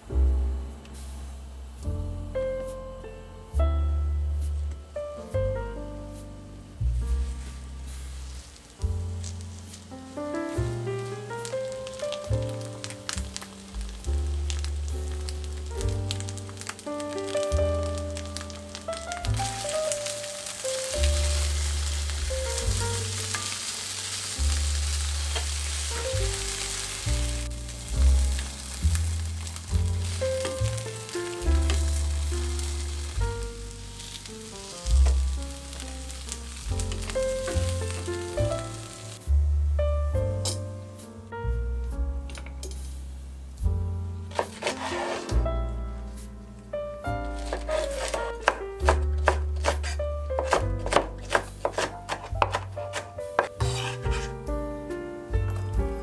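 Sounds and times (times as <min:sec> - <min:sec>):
tofu sizzling in oil: 0:06.7 - 0:39.3, 0:44.2 - 0:45.4, 0:47.0 - 0:54.5
background music with deep bass: 0:24.4 - 0:49.0
knife chopping on wooden board: 0:47.5 - 0:54.3.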